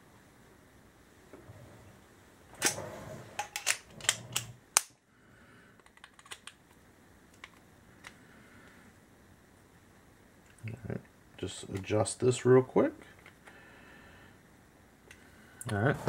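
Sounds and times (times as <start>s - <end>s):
tools clicking and clattering: 3.4s - 4.9s.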